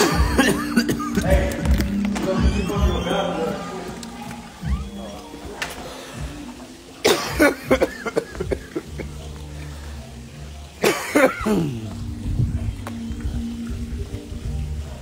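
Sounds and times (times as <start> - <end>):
man coughing: 0.0 - 1.3, 7.0 - 9.2, 10.8 - 11.9.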